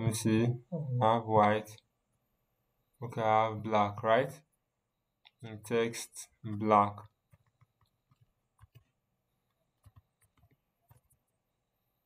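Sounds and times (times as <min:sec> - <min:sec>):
faint keyboard keystrokes: 0:07.3 - 0:11.4.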